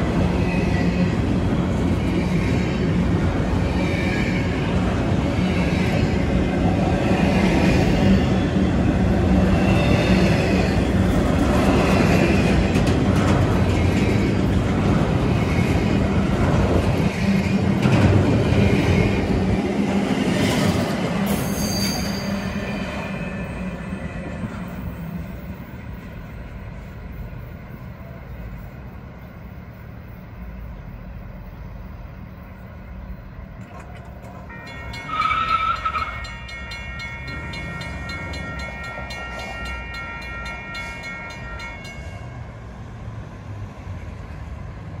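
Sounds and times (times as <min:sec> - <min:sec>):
freight train rumble: 0:00.0 - 0:45.0
crossing bell ringing: 0:21.4 - 0:24.0, 0:34.5 - 0:42.6.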